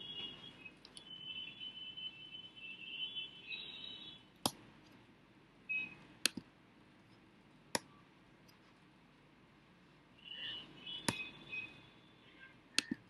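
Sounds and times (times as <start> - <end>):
computer mouse clicks: 6.2 - 6.5, 12.8 - 13.0.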